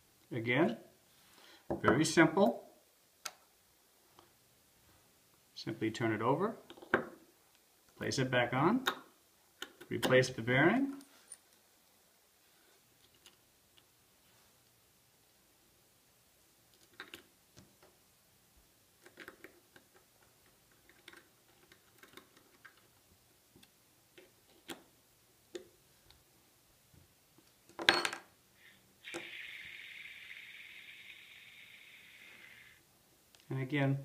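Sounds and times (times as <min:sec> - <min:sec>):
steady hiss: 0:28.4 - 0:34.0.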